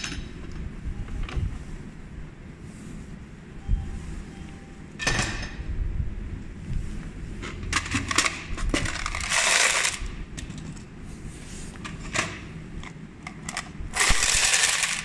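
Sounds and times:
coins jingling in plastic tray: 14.0s - 15.0s
coins pouring: 14.0s - 15.0s.

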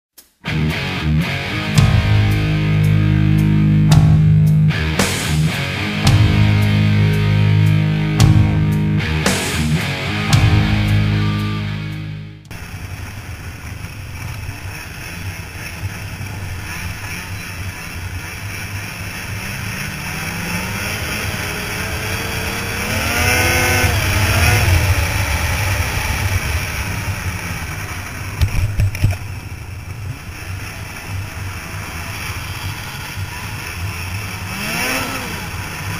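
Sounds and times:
snowmobile engine under throttle: 12.5s - 35.9s.

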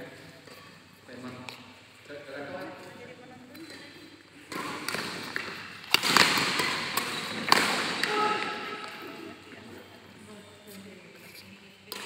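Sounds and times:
sharp racket strikes: 4.5s - 9.0s.

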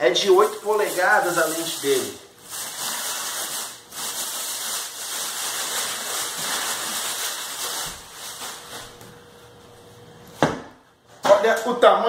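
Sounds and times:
plastic wrapping crinkling: 0.0s - 9.2s.

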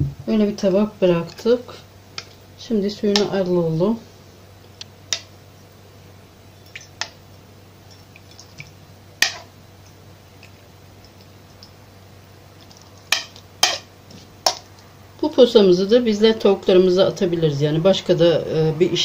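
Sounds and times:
faint dripping: 7.8s - 11.8s.

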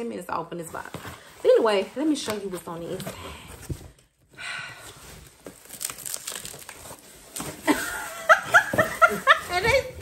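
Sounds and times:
woman laughing: 7.6s - 10.0s.

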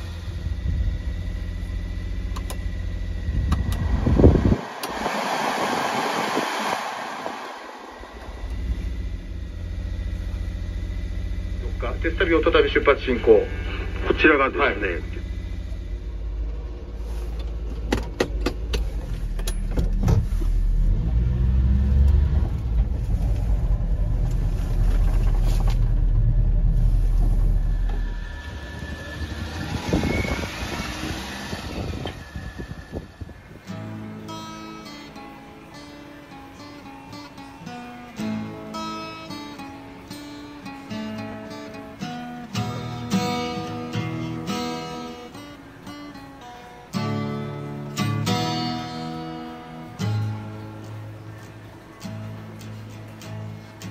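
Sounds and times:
truck engine idling: 0.0s - 19.7s, 22.5s - 34.6s
blower fan air rush: 2.4s - 10.0s, 26.6s - 33.8s.

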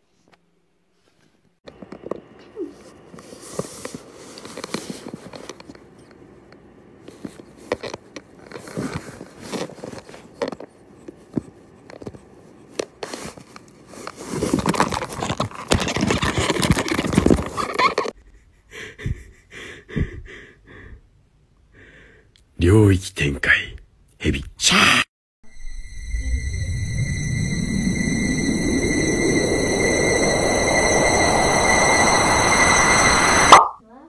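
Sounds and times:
paper bag rustling and crinkling: 7.1s - 10.4s, 13.0s - 18.1s.

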